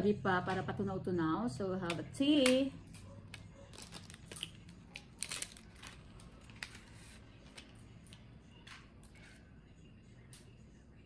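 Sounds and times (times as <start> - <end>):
paper sachet crinkling and tearing: 3.7 - 7.7.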